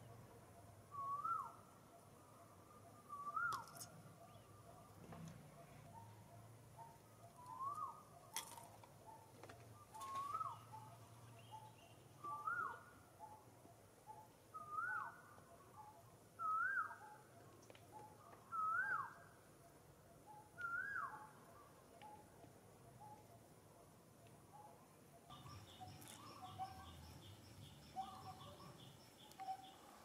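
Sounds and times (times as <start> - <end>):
whistled animal call: 0.9 - 1.6, 3.0 - 3.8, 7.4 - 8.0, 14.6 - 15.2, 15.8 - 17.2, 18.5 - 19.2, 20.3 - 21.3.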